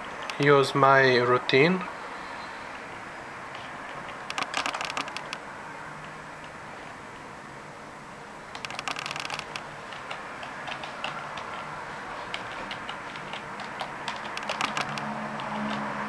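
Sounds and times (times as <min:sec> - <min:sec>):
typing on computer keyboard: 0:04.1 - 0:05.4, 0:08.5 - 0:16.0.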